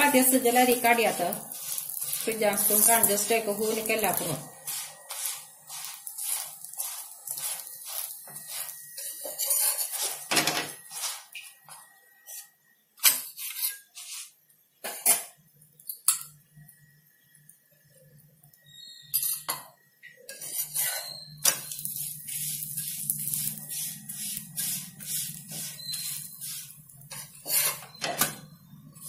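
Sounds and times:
spatula scraping a griddle: 0.1s - 11.5s, 13.2s - 15.2s, 20.2s - 29.0s.

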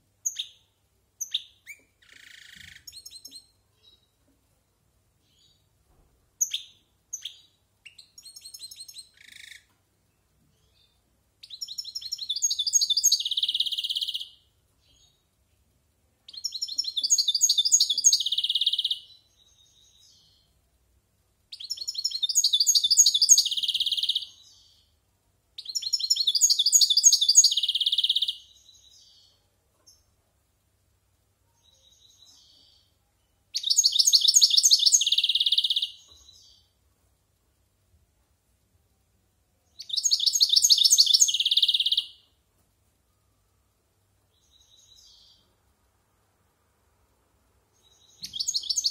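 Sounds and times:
goldfinch twittering song: 33.6s - 36.6s, 39.8s - 42.2s, 47.8s - 48.9s.

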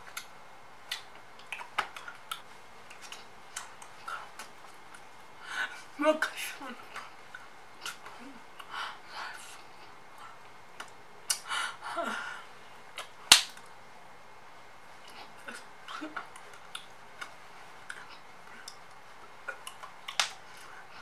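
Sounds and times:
person's wordless vocal noises: 5.4s - 9.6s, 11.3s - 12.5s.

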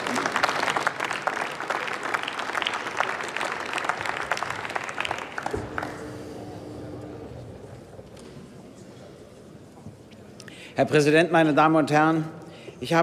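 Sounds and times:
crowd applauding: 0.0s - 7.1s.

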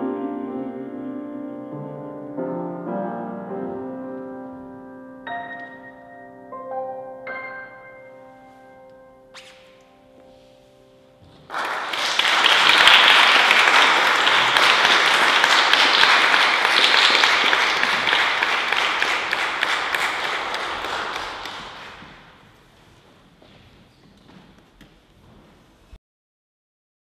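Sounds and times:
piano chord ringing: 0.0s - 11.4s
audience applause: 11.5s - 22.4s.

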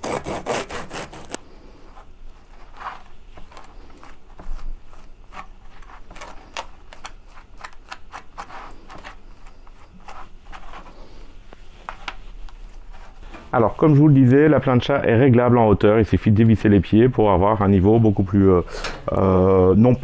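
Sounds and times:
knife scraping bread: 0.0s - 13.3s.

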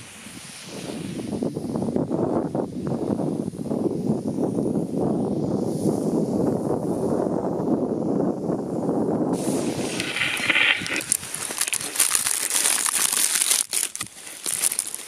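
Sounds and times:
plastic wrapping crinkling: 9.5s - 15.0s.

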